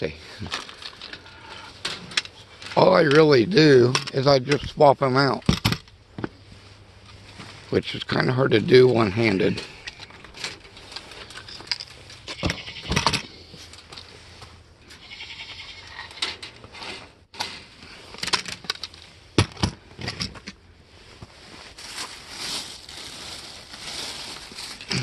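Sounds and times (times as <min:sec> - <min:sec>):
plastic jugs knocking and clattering: 0:18.3 - 0:20.5
plastic bag rustling: 0:21.0 - 0:25.0.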